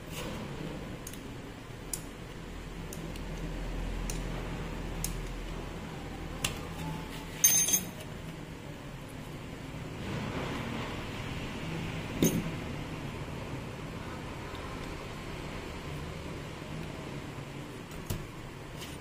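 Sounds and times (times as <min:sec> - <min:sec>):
small metal parts clinking: 0:07.4 - 0:08.0.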